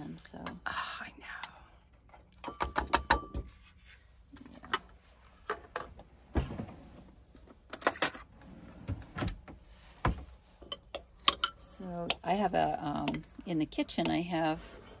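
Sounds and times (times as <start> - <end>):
silverware clinking: 10.6 - 11.7.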